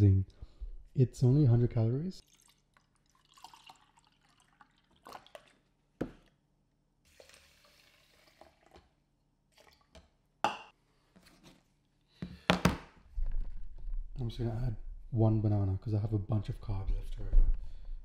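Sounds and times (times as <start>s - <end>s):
liquid pouring: 2.2s - 6.4s, 7.1s - 10.2s.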